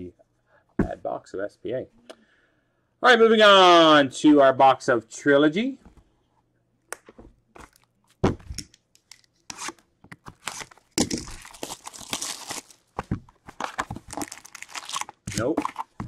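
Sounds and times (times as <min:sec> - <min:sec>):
plastic wrap tearing and crinkling: 0:09.6 - 0:16.0.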